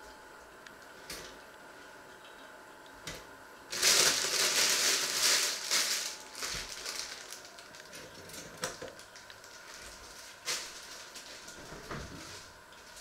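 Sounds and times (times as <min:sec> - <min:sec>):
plastic wrapping crinkling: 0:03.7 - 0:13.0.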